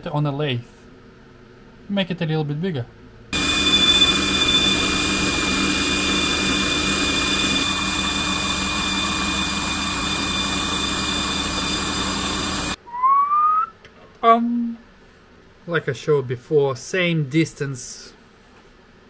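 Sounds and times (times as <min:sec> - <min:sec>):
metal lathe cutting: 0:03.4 - 0:12.8
rising whistle-like tone: 0:03.4 - 0:13.8.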